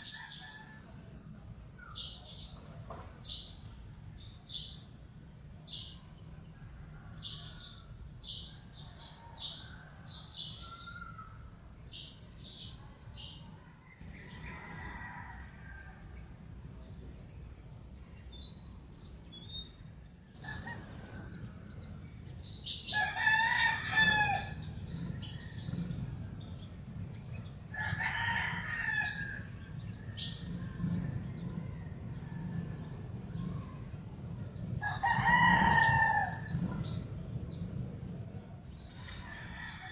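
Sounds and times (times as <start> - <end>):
rooster crowing: 0.0 - 1.0, 8.6 - 11.5, 13.6 - 16.2, 22.8 - 26.2, 27.7 - 33.4, 34.8 - 36.7, 39.0 - 39.9
small birds chirping: 1.7 - 39.3
steady low rumble: 11.3 - 39.8.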